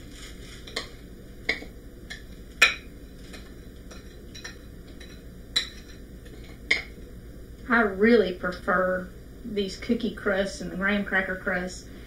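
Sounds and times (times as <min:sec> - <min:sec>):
crumbs scraped into pan: 0:00.0 - 0:00.9.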